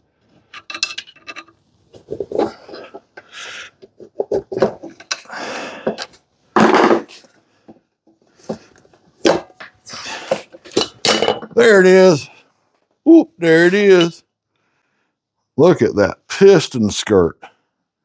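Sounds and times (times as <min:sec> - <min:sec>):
metal parts scraping and knocking: 0:00.4 - 0:03.2, 0:03.8 - 0:05.3.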